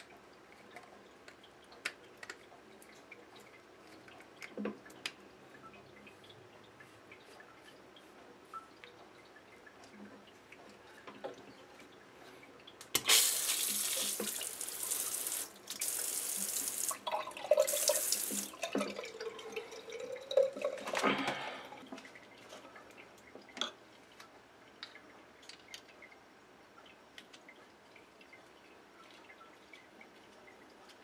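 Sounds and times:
bidet sprayer water bursts: 13.0 - 17.0.

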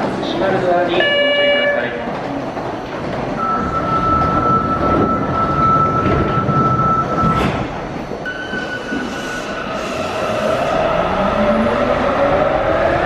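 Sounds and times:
train rumbling at platform: 0.0 - 13.0
train doors shutting: 1.0 - 13.0
door-closing warning tone: 3.4 - 7.6, 8.3 - 9.6.

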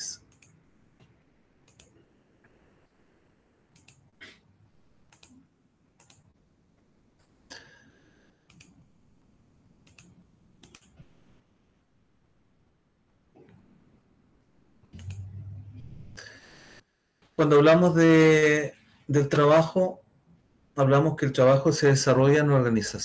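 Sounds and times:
computer mouse clicking: 0.2 - 2.0, 3.7 - 4.1, 5.1 - 5.4, 6.0 - 6.3, 8.5 - 8.8, 9.8 - 11.0, 15.0 - 15.3
rough scraping sound: 15.0 - 16.4.

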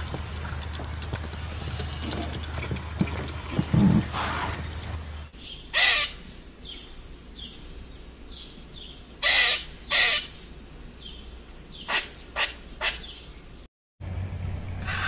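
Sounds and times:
birds chirping: 0.0 - 5.7
pheasant harsh calls: 0.0 - 6.2, 9.2 - 10.3, 11.8 - 13.2.

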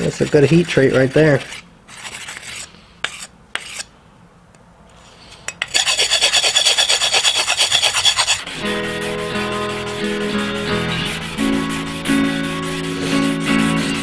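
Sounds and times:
stone scraping knife blade: 1.4 - 3.9, 5.3 - 8.5.

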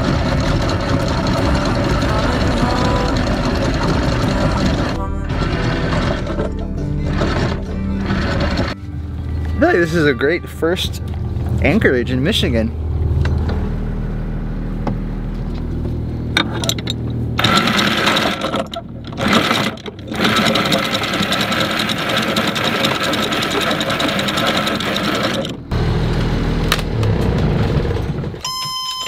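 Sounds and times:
diesel engine idling: 0.0 - 19.4
anchor chain rattling: 16.4 - 25.6.

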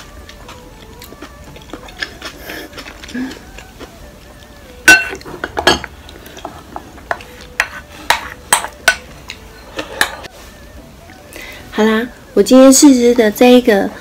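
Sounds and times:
spoon knocking on ceramic bowl: 4.8 - 5.9, 7.1 - 9.1.

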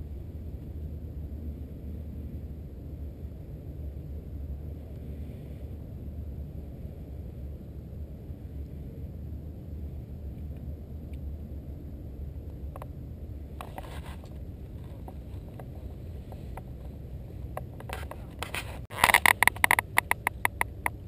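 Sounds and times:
wind rumbling on microphone: 0.0 - 21.0.

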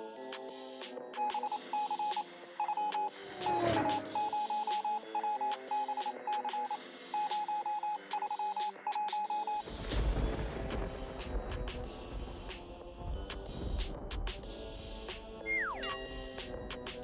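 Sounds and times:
electronic music with beeping motif: 1.1 - 9.6, 15.4 - 17.0.

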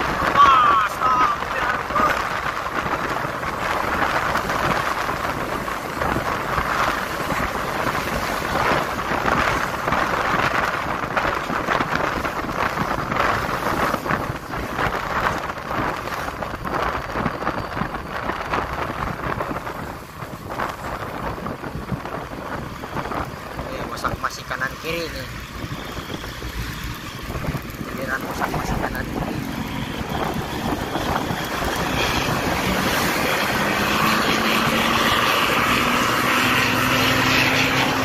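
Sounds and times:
road and traffic noise: 0.0 - 38.0
wind buffeting microphone: 0.0 - 38.0.

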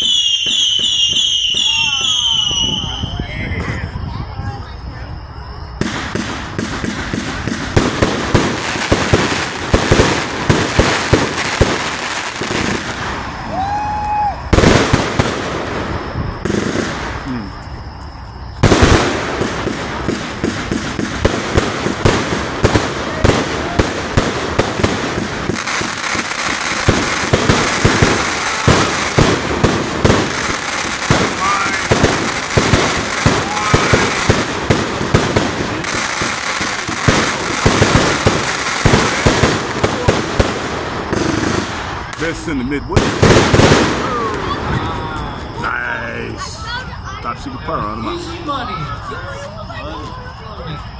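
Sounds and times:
firework cake firing shots: 5.8 - 13.5, 14.5 - 17.6, 18.6 - 45.7.

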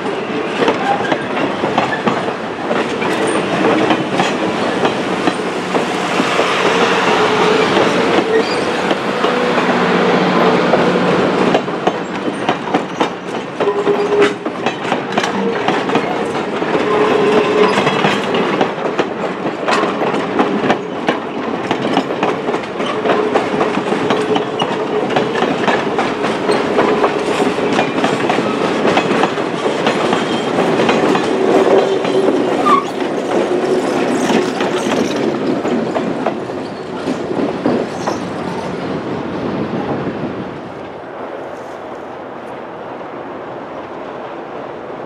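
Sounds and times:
train wheels clattering over rail joints: 0.0 - 38.9.

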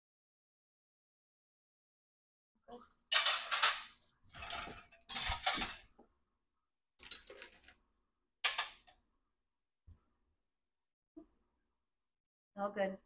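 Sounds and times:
cutlery clinking on plate: 3.1 - 5.9, 8.4 - 9.0.

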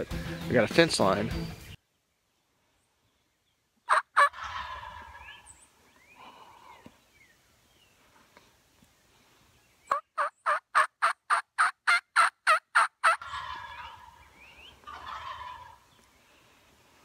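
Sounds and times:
wild turkey yelping: 3.9 - 5.7, 9.9 - 16.0.

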